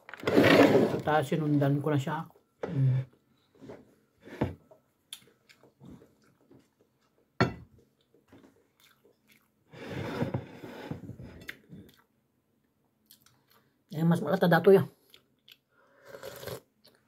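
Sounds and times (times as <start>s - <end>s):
person chewing: 5.1s - 9.6s, 11.4s - 12.2s, 13.0s - 13.7s, 15.0s - 17.0s.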